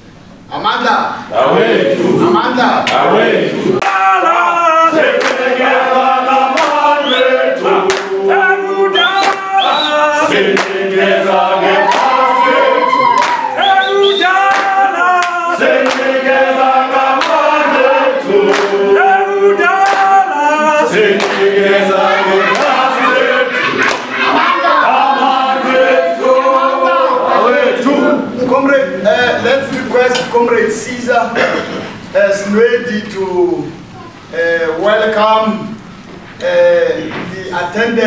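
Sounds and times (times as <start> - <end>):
group singing in harmony: 1.3 - 28.4.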